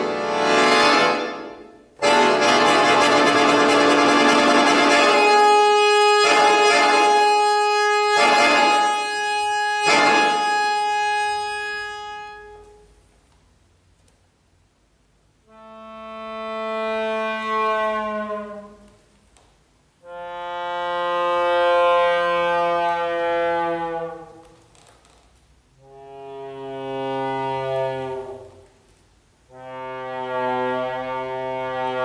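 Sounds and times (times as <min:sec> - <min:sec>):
accordion chords: 0:00.0 - 0:13.0, 0:15.3 - 0:19.0, 0:20.0 - 0:24.4, 0:29.4 - 0:32.0.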